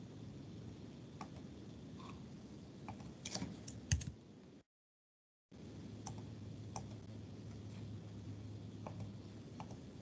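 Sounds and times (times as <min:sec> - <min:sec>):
computer keyboard keystrokes: 0:02.9 - 0:04.2.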